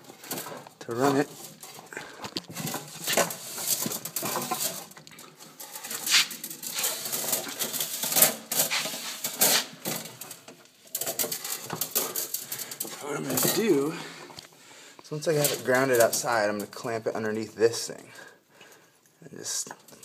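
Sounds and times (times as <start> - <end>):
handling scrapes and rustles: 0.0 - 16.9.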